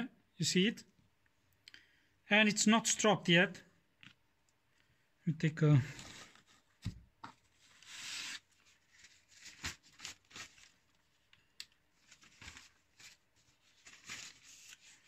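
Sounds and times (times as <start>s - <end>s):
paper rustling: 5.9s - 11.2s, 12.0s - 15.0s.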